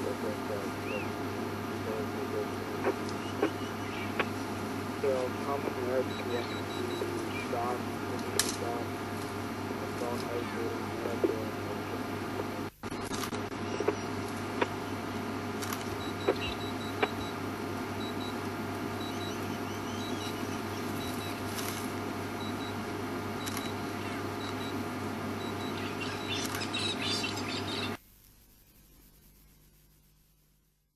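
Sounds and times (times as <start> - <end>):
vehicle engine humming: 0.0 - 28.0
sharp clicks: 8.1 - 8.7, 15.6 - 17.3, 23.4 - 23.8.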